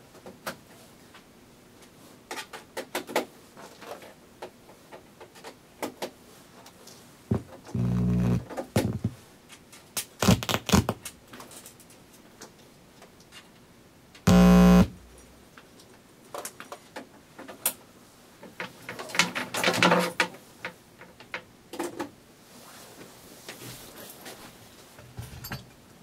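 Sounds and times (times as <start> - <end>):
electronic tone: 7.8 - 8.4, 14.3 - 15.2.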